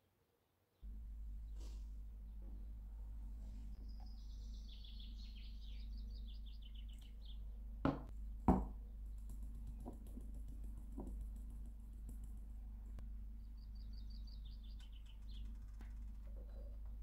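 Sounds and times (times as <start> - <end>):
songbird chirping: 0.7 - 8.1, 12.9 - 17.0
steel bowl knocking on plastic: 7.9 - 8.8.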